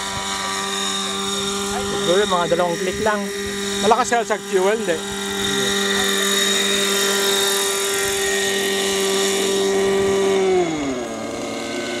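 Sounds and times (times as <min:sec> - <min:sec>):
model helicopter engine whining: 0:00.0 - 0:12.0.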